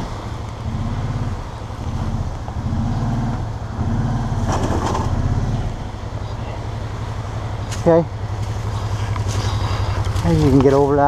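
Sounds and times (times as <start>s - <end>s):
off-road vehicle engine revving: 0.0s - 11.0s.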